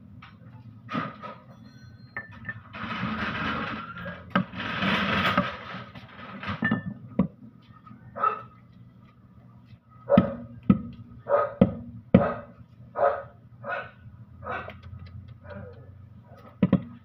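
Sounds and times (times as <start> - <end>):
metal parts rattling and scraping: 0.9 - 6.9.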